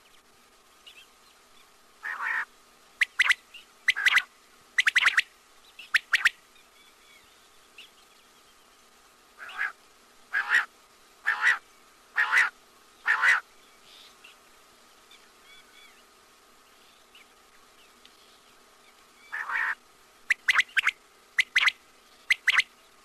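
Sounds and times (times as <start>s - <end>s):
faint chirping: 0.0s - 23.0s
quail calling: 2.0s - 6.3s, 9.4s - 13.4s, 19.2s - 22.7s.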